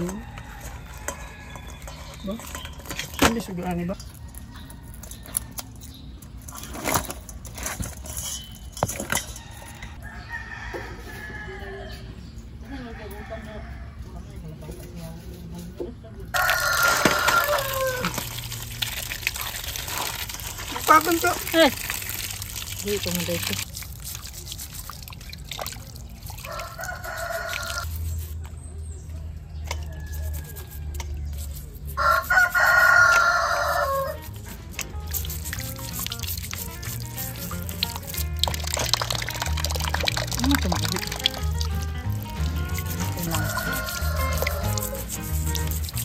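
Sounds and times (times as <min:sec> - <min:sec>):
rooster crowing: 0:09.4 - 0:12.1, 0:12.7 - 0:14.0, 0:16.3 - 0:18.3, 0:26.4 - 0:27.9, 0:31.9 - 0:34.3, 0:43.2 - 0:45.2
water dripping and clicking: 0:17.2 - 0:27.9, 0:34.8 - 0:46.0.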